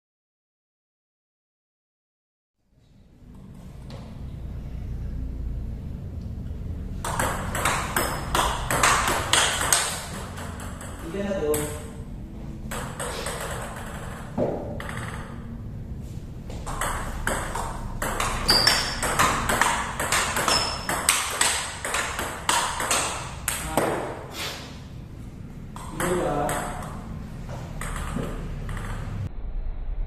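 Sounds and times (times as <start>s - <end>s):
table tennis ball clicking: 7.0s - 11.8s, 12.7s - 15.4s, 16.7s - 23.9s, 25.8s - 27.0s, 27.8s - 29.2s.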